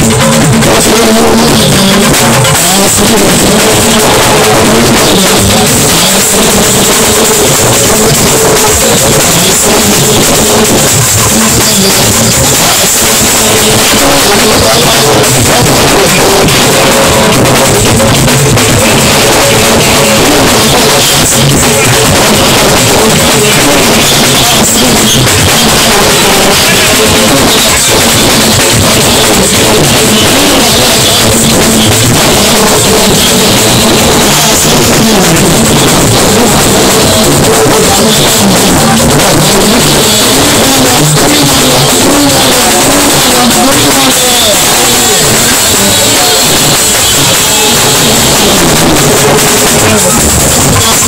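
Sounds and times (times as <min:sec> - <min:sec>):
driving drums: 0:00.0 - 0:51.0
live music from loudspeakers: 0:00.0 - 0:51.0
person singing: 0:00.0 - 0:51.0.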